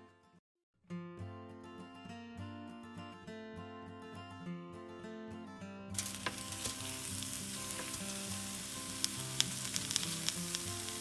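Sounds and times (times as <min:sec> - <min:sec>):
crackles and pops: 0:06.0 - 0:11.0
vegetables sizzling on foil: 0:06.0 - 0:11.0.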